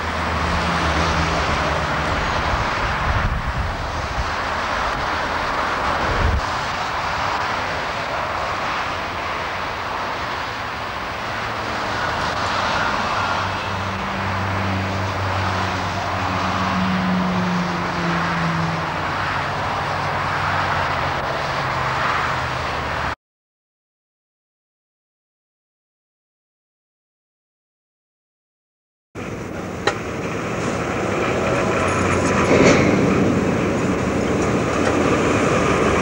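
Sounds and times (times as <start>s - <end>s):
machinery roaring: 0.0s - 23.1s, 29.2s - 36.0s.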